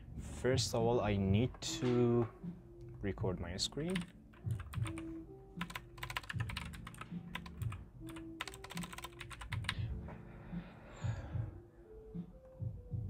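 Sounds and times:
soft background music with beat: 0:00.0 - 0:13.0
keyboard typing: 0:03.7 - 0:09.8.

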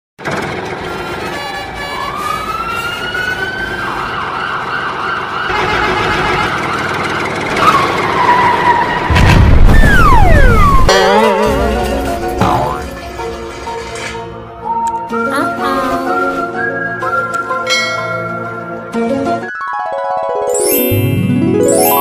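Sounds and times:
loud low rumble: 0:09.1 - 0:11.9
cartoon siren warbling: 0:09.6 - 0:12.9
falling whistle: 0:09.7 - 0:10.9.

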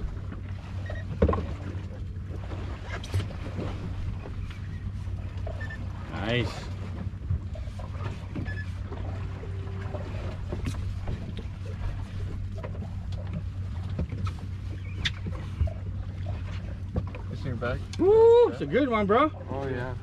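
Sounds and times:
boat engine idling: 0:00.0 - 0:20.0.

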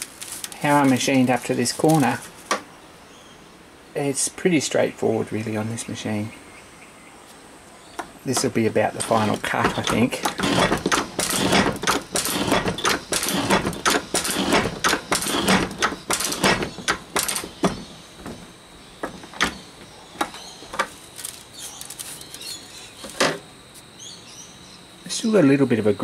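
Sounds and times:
metal shaper clattering: 0:08.3 - 0:18.4.

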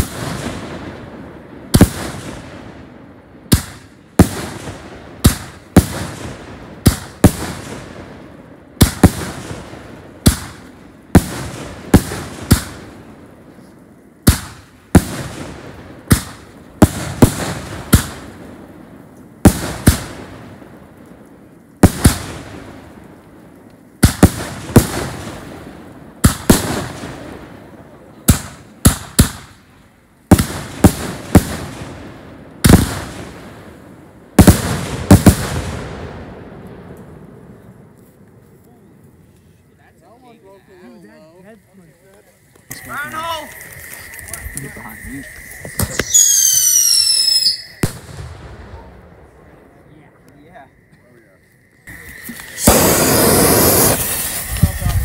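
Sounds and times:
firework cake firing bangs: 0:00.0 - 0:13.2, 0:14.2 - 0:18.6, 0:19.4 - 0:20.7, 0:21.8 - 0:22.9, 0:24.0 - 0:37.1, 0:45.7 - 0:49.6, 0:52.5 - 0:55.0.

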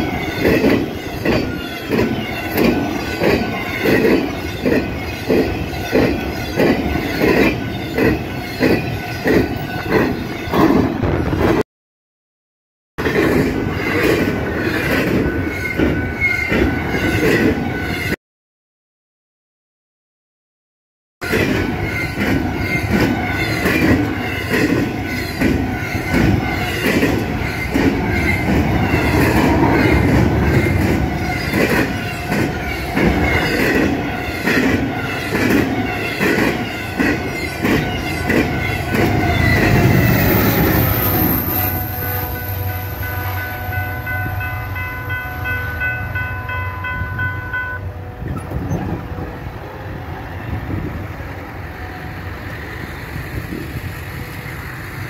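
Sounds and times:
train rumble: 0:00.0 - 0:11.6, 0:21.2 - 0:55.0
train wheels clattering over rail joints: 0:00.2 - 0:11.6, 0:21.3 - 0:40.3.

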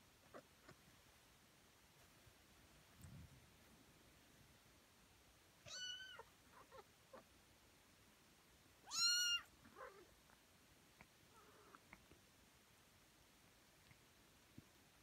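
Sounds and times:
cat meowing: 0:05.6 - 0:07.2, 0:08.8 - 0:10.1
faint soft clicks: 0:11.0 - 0:12.2, 0:13.8 - 0:14.8.

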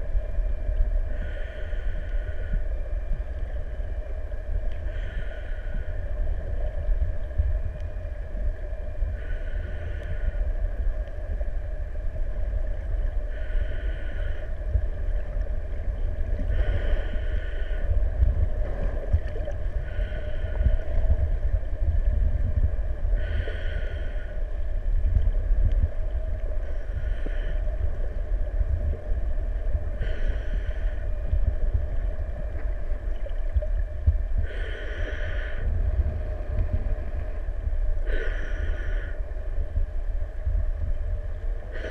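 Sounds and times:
underwater rumble of moving water: 0:00.0 - 0:41.9
breathing through a snorkel: 0:16.5 - 0:18.0, 0:23.2 - 0:24.4, 0:29.9 - 0:31.2, 0:34.4 - 0:35.8, 0:38.0 - 0:39.3.

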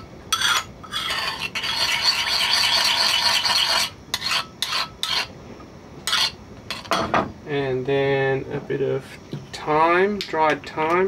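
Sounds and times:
metal spoon scraping ceramic bowl: 0:00.3 - 0:05.3, 0:06.1 - 0:06.9.

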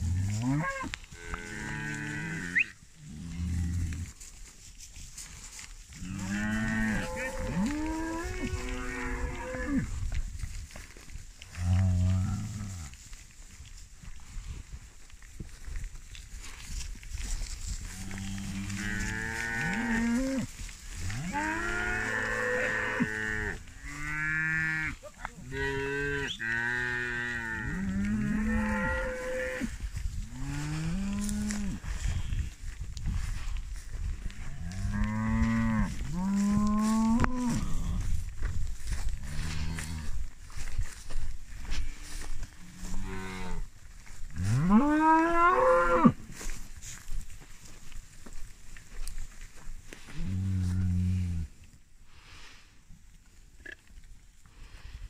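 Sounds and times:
cattle mooing: 0:06.0 - 0:09.8, 0:18.0 - 0:20.5, 0:21.1 - 0:29.7.

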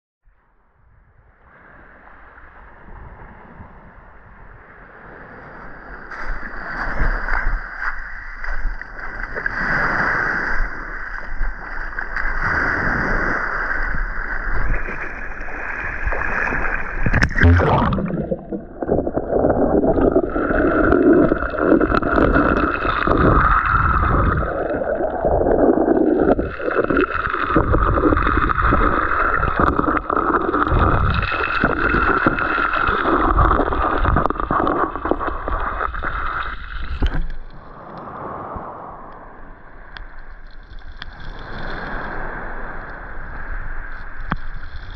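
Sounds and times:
muffled underwater rushing: 0:06.1 - 0:37.8.

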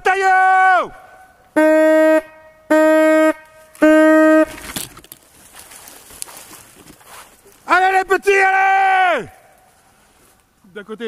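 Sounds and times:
hunting horn notes: 0:01.5 - 0:04.8
brush and leaves rustling: 0:03.4 - 0:08.4, 0:09.2 - 0:11.0.

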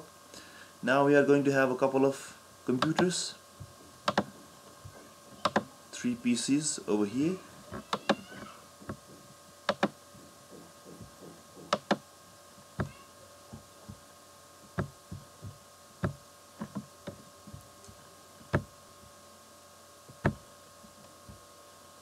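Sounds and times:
faint steady hum: 0:00.0 - 0:22.0
computer mouse clicking: 0:02.8 - 0:03.1, 0:04.1 - 0:04.3, 0:05.4 - 0:05.6, 0:09.7 - 0:10.0, 0:11.7 - 0:12.0.

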